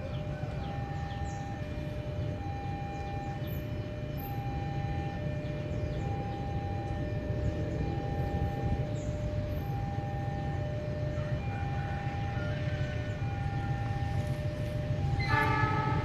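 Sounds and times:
small birds chirping: 0.0 - 11.1
two-tone electronic alarm: 0.0 - 16.0.

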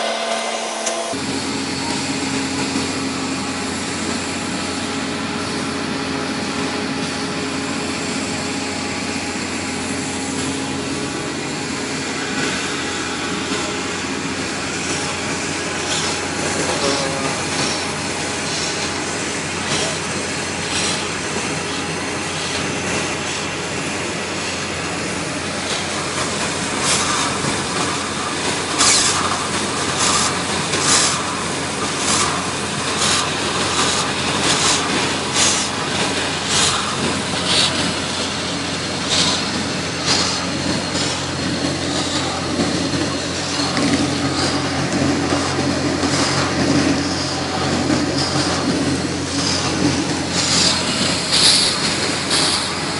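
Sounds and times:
air and water surging out: 0.0 - 52.9
air compressor running: 0.0 - 52.9.

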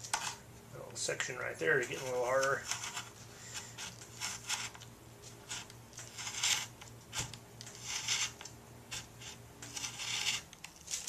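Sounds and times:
faint steady hum: 0.0 - 11.0
knife cutting fiberglass cloth: 5.5 - 10.5.

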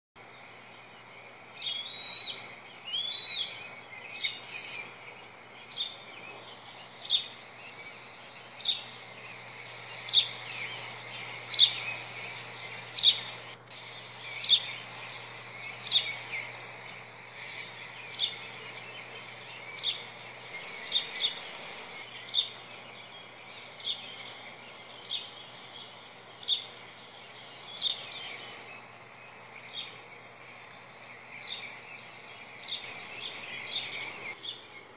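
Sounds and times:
fuller quicker bird calls: 0.8 - 34.9
high downward bird chirps: 0.8 - 34.9.

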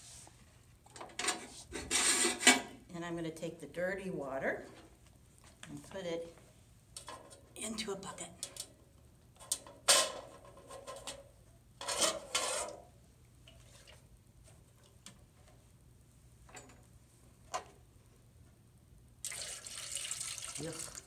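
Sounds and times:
water pouring into metal pail: 19.2 - 21.0.

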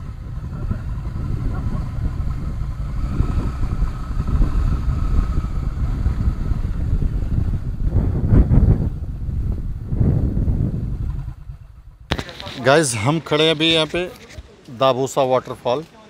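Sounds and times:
motorcycle engine running: 0.0 - 12.2
wind rumbling on microphone: 0.0 - 12.6.

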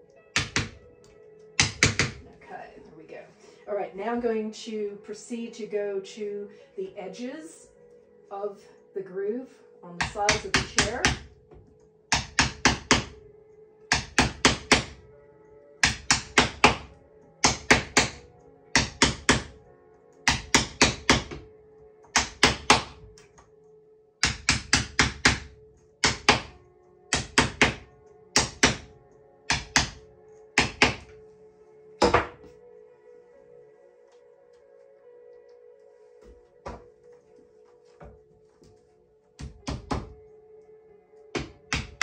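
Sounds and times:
mallet knocking on tool: 32.0 - 32.5.

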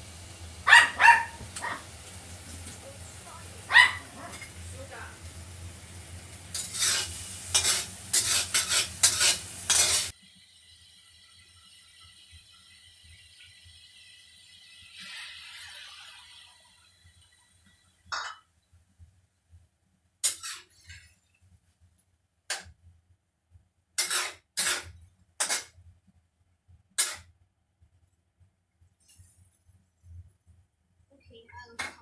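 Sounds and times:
water sizzling in hot wok: 0.0 - 18.3, 20.2 - 21.2, 24.0 - 25.7, 27.0 - 27.2.

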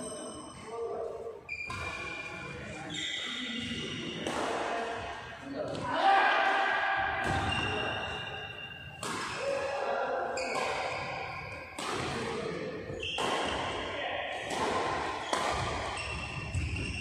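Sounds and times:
racket hitting shuttlecock: 3.6 - 5.8, 6.4 - 9.7, 10.4 - 17.0.

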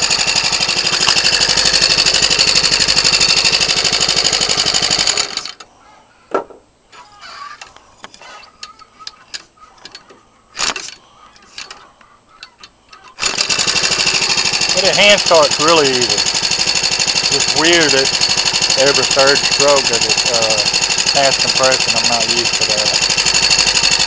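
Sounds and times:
small engine running fast: 0.0 - 5.6, 13.2 - 24.0.

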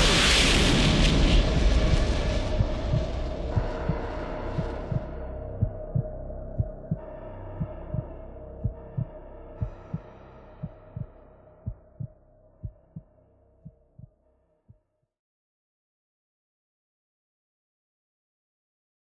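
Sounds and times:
low double thump heartbeat: 1.8 - 14.2.

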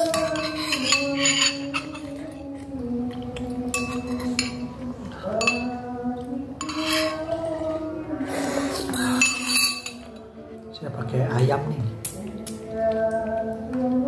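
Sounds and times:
cutlery clinking on ceramic bowls: 0.0 - 5.9, 6.6 - 7.5, 8.8 - 10.3.

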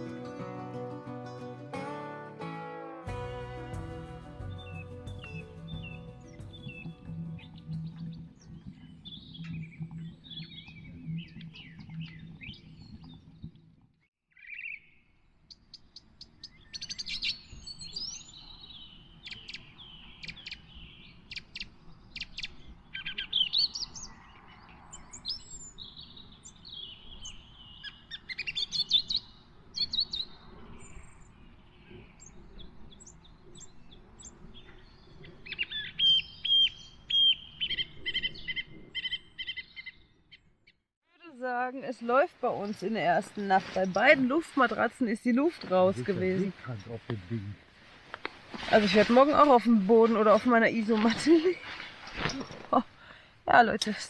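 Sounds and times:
songbirds chirping and singing: 3.1 - 13.5, 14.4 - 40.4.

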